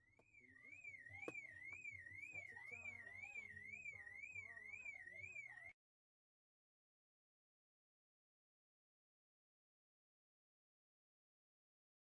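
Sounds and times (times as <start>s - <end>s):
car alarm warbling: 0.2s - 5.8s.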